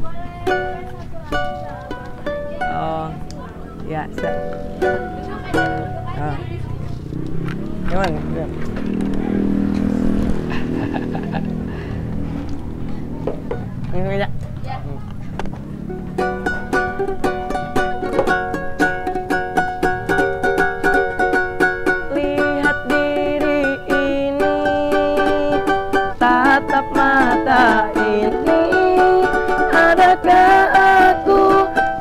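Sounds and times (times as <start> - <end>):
small string instrument strummed: 0.0 - 13.7, 15.1 - 32.0
young man singing: 22.1 - 32.0.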